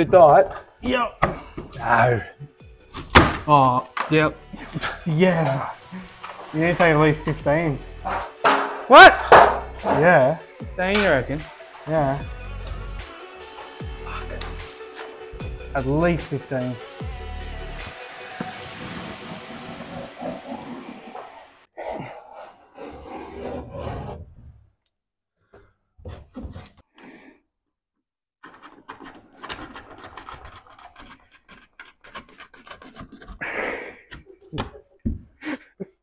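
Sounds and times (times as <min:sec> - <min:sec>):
plasterboard edge rasping: 0:18.3 - 0:24.3, 0:28.4 - 0:33.5.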